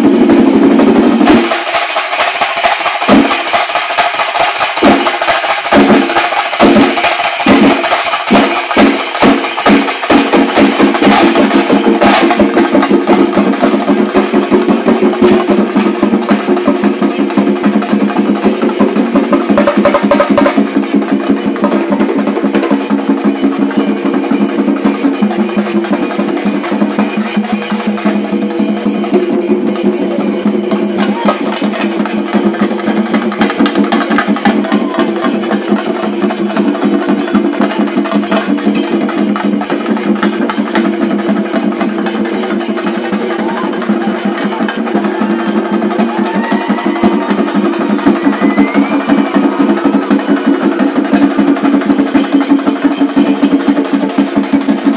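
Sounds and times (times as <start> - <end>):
cymbals: 0.0 - 54.9
drums playing fast rhythm: 0.0 - 54.9
rising whistles: 46.0 - 51.3.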